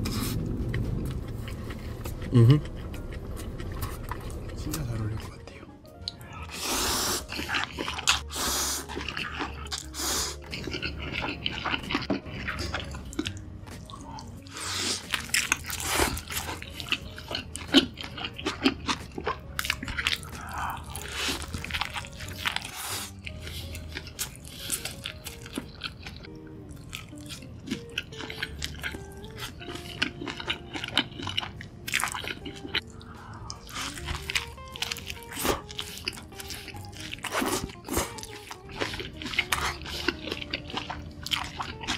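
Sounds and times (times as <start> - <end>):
quiet background music: 0.0 - 41.9
wet noisy chewing: 6.0 - 41.9
noodles slurped: 32.0 - 41.9.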